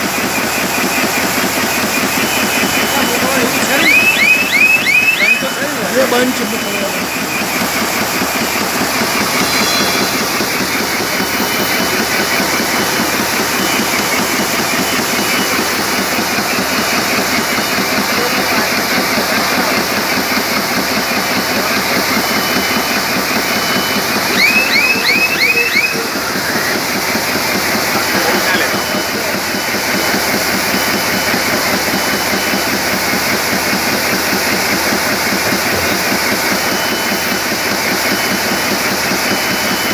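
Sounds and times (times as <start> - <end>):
short high squeaks: 6.2 - 12.7.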